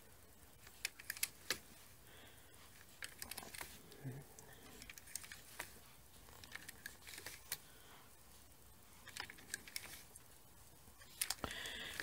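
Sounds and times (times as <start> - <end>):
knitting machine needles clicking: 0.6 - 1.6, 4.7 - 5.7.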